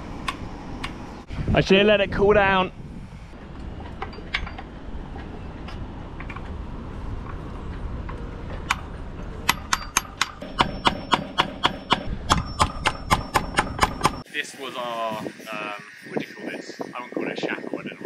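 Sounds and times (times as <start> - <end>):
wind on microphone: 0.0 - 9.8, 12.0 - 14.2, 14.8 - 18.0
hammer striking metal pin: 9.4 - 14.2.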